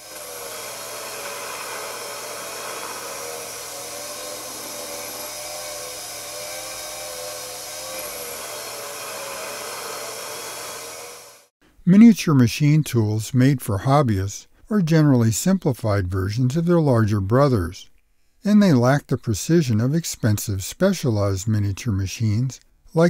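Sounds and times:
small lathe whirring: 0.0s - 11.5s.

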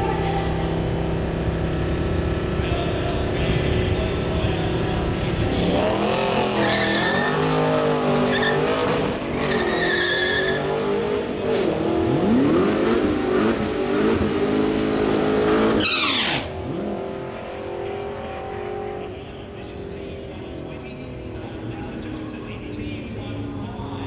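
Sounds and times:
car engine revving: 0.0s - 24.0s
tyres spinning and squealing: 5.5s - 11.8s, 15.6s - 16.9s.

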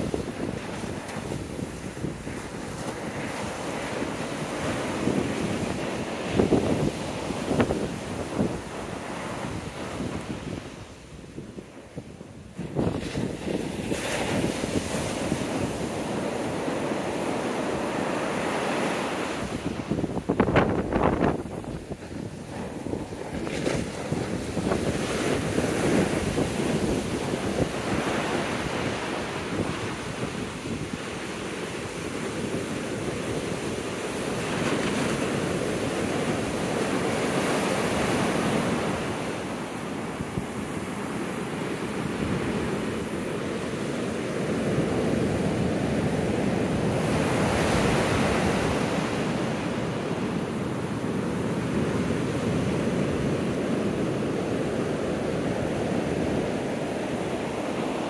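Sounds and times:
heavy surf breaking: 0.0s - 58.0s
wind buffeting microphone: 0.0s - 58.0s.

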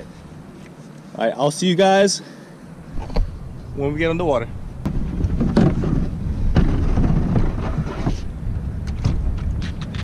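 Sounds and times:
wind buffeting microphone: 2.9s - 10.0s.

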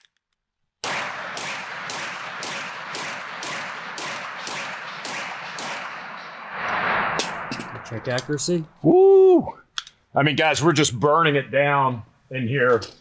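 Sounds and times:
pistol shots: 0.8s - 6.6s.

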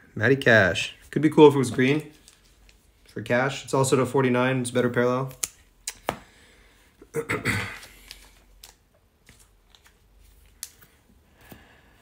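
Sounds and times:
cards clicking on a table: 7.8s - 10.9s.

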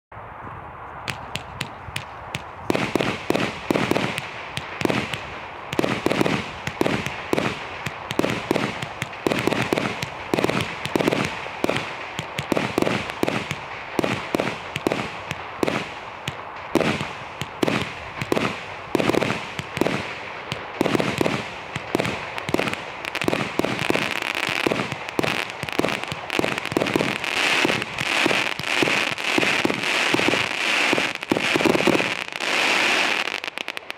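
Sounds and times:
firework burst bangs: 1.0s - 33.9s
firework hiss: 1.0s - 33.9s.

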